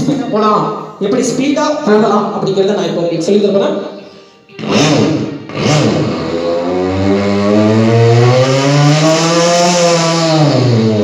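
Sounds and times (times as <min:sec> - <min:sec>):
man imitating motorbike engine: 0:04.6 - 0:11.0.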